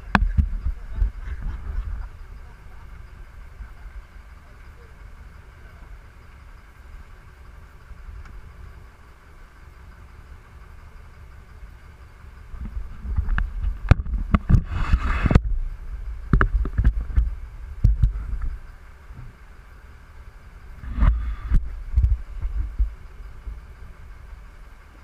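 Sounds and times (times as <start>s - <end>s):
wind buffeting microphone: 0.0s - 4.0s, 12.4s - 19.4s, 20.6s - 24.5s
boat engine running: 0.0s - 25.0s
short hissing burst: 14.6s - 15.4s.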